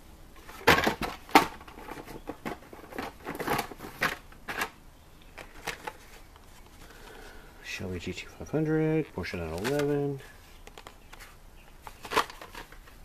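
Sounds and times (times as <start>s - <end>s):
plastic blister packs clacking: 0.4s - 6.2s, 9.2s - 11.2s, 11.8s - 13.0s.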